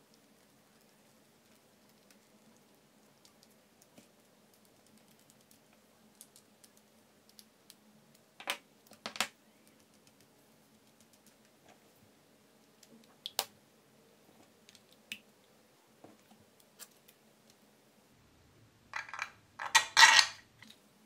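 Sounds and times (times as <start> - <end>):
plastic parts clicking and tapping: 19.0 - 20.8.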